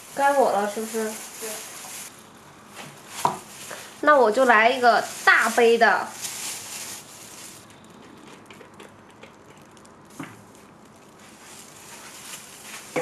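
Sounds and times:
low hiss: 0.0 - 7.8.

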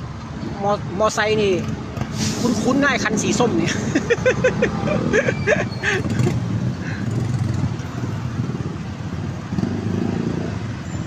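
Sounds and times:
traffic noise: 0.0 - 11.0
motorcycle engines running: 3.7 - 11.0.

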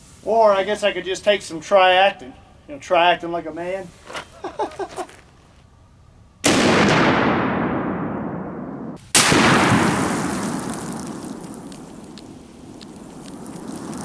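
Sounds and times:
rifle shot with long echo: 6.4 - 11.4.

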